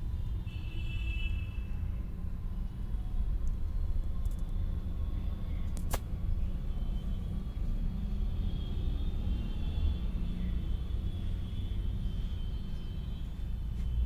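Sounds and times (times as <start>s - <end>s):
sharp click: 5.7s - 6.1s.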